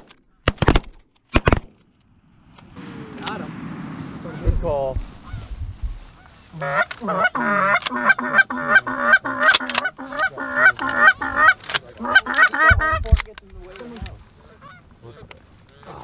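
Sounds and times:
low thump: 0:02.2 - 0:06.0
geese honking: 0:05.2 - 0:13.1, 0:14.4 - 0:16.0.

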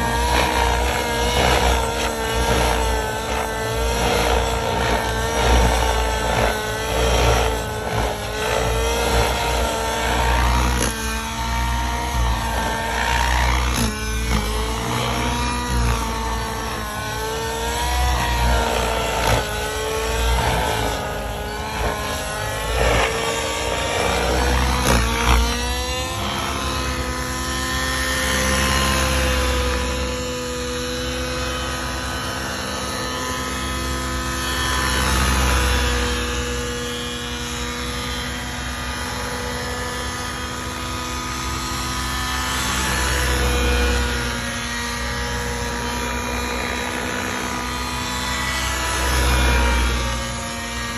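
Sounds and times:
model helicopter engine: 0:00.0 - 0:50.9.

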